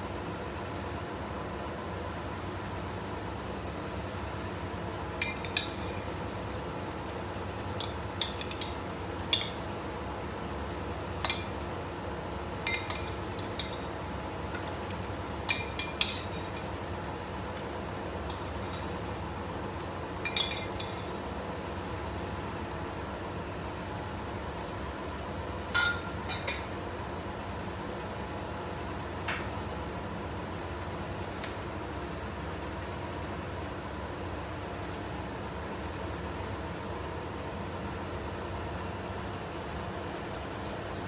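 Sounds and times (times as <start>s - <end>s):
background hum: 0.0s - 41.0s.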